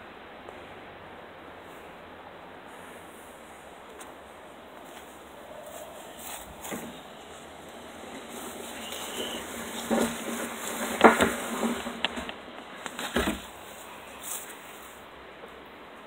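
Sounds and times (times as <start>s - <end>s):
handling rubbing noise: 2.7s - 15.1s.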